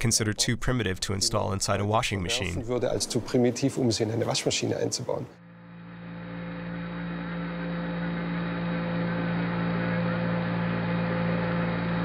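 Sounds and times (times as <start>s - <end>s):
faint steady tones: 0.9s - 12.0s
low hum: 5.4s - 12.0s.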